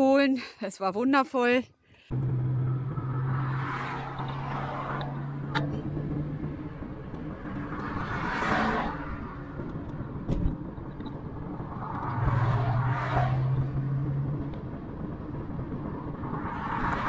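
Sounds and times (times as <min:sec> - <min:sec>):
road traffic rumble: 0:01.8 - 0:17.0
vehicle passing by: 0:02.1 - 0:09.7, 0:11.3 - 0:17.0.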